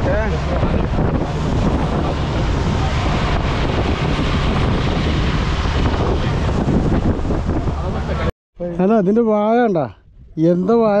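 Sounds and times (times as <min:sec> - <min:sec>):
water rushing along hull: 0:00.0 - 0:08.3
wind buffeting microphone: 0:00.0 - 0:11.0.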